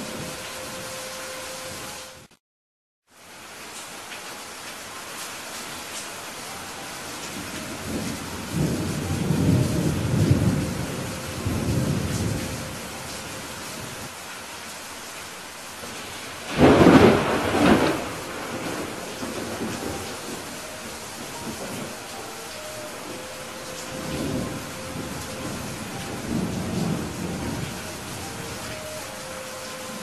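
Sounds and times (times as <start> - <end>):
steady rain: 0.0 - 2.3, 3.0 - 30.0
thunder rumbling: 7.3 - 14.1, 15.8 - 30.0
sharp thunderclap: 16.5 - 20.4.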